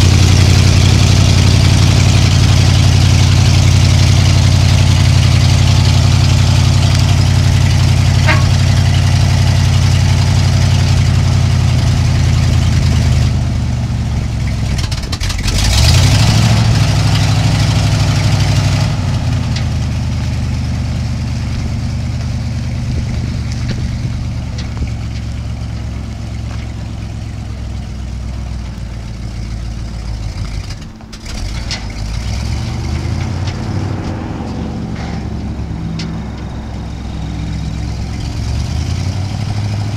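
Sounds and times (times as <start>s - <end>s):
truck engine idling and revving: 0.0s - 39.9s.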